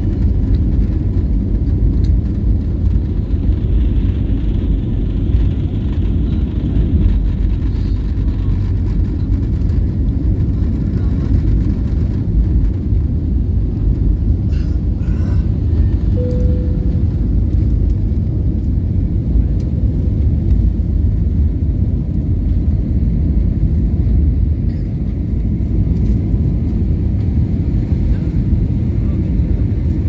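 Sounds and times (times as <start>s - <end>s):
jet engine cabin rumble: 0.0s - 30.0s
brief single tone: 16.1s - 17.2s.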